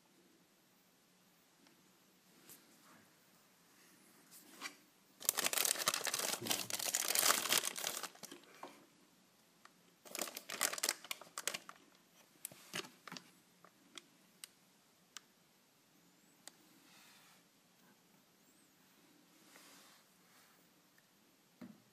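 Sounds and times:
plastic bag crinkling: 5.2s - 8.6s, 10.0s - 13.3s
small crackles and clicks: 9.6s - 15.3s.

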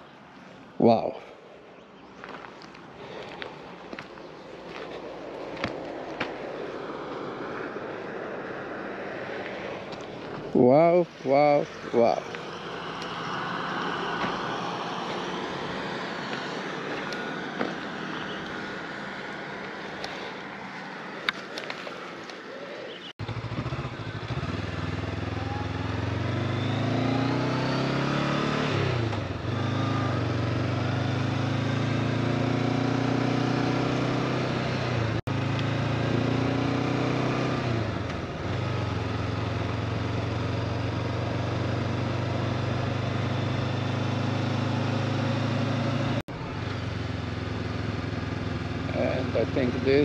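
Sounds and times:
road noise: 0.0s - 50.0s
motorcycle engine running: 23.2s - 27.3s.

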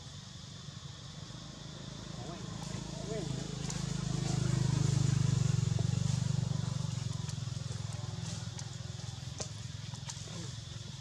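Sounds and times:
vehicle engine passing: 1.2s - 11.0s.

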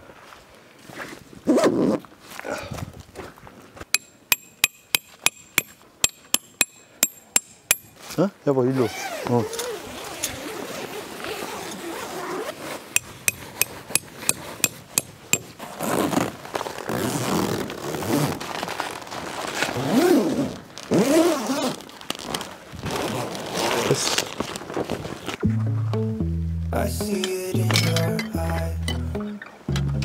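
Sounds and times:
tent gear scraping and handling: 0.8s - 2.3s, 7.9s - 25.4s
hammer striking metal tent peg: 4.0s - 7.9s, 13.0s - 15.5s.

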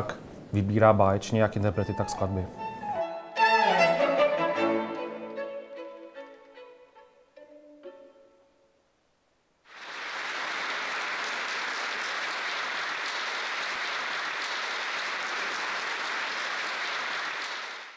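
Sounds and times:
flute and strings note: 1.7s - 8.2s
audience applause: 9.7s - 17.9s.

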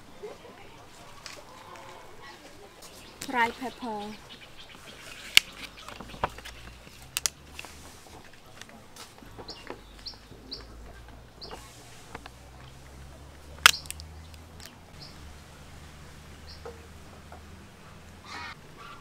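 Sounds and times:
rice paper wrapper clicking on tray: 13.6s - 14.7s.

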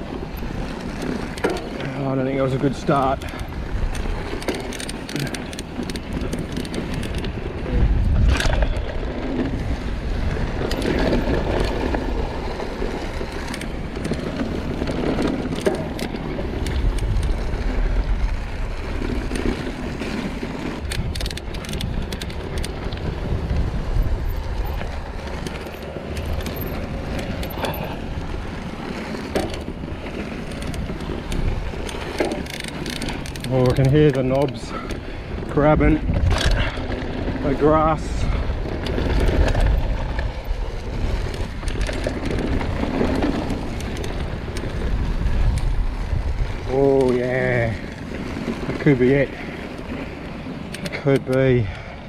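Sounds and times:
bike tyres tearing through grass: 0.0s - 51.8s
bike rattling clicks: 0.0s - 52.0s
wind buffeting microphone: 0.0s - 52.0s.

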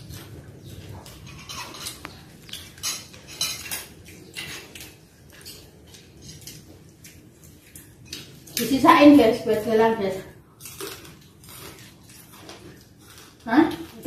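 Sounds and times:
spoons and plates clinking: 1.0s - 6.7s.

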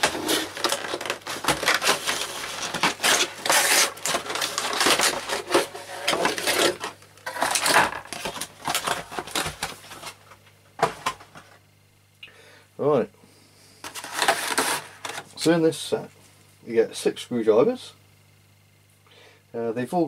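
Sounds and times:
packaging rustling and crackling: 0.0s - 11.6s, 13.8s - 15.3s.

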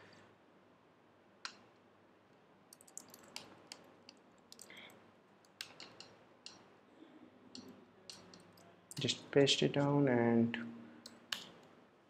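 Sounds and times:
computer keyboard clicks: 2.7s - 6.6s.

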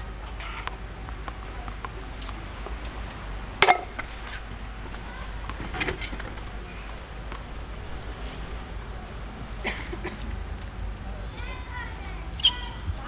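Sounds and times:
tennis ball struck by racket: 3.6s - 7.6s.

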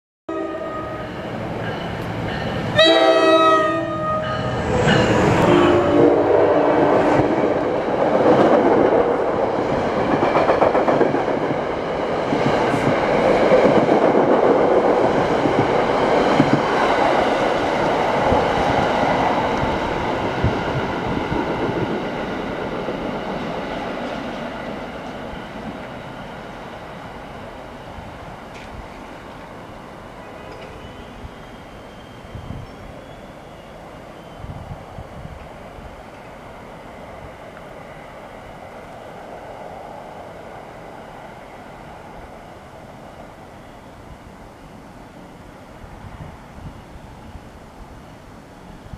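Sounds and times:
locomotive horn: 0.3s - 1.2s, 2.7s - 4.6s, 5.3s - 7.0s
train cars rushing and clattering: 0.3s - 43.4s.

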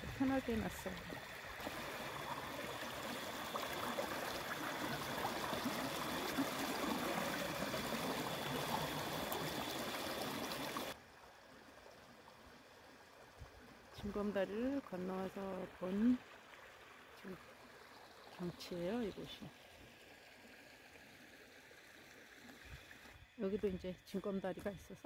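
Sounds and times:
stream trickling over rocks: 0.0s - 23.2s.

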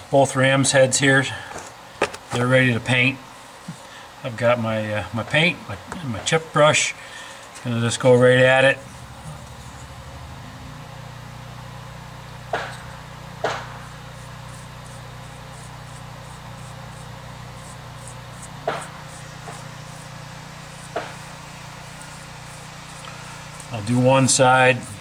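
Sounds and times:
steady low hum: 0.0s - 25.0s
brush tapping on metal: 12.5s - 25.0s.

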